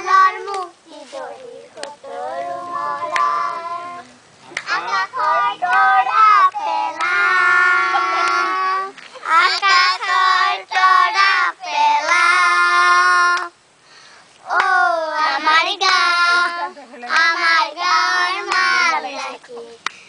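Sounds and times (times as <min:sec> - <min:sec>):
children singing: 0:00.0 - 0:04.1, 0:04.7 - 0:13.5.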